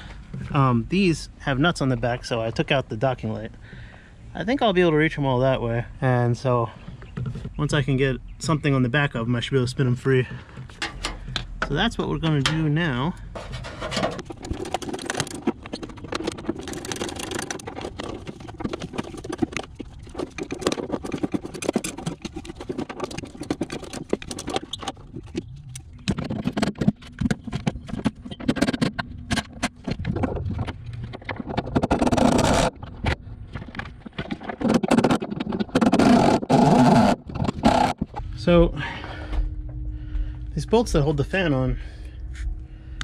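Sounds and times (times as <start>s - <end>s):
wrench clicking and scraping on bolts: 10.7s - 11.6s, 13.3s - 24.9s.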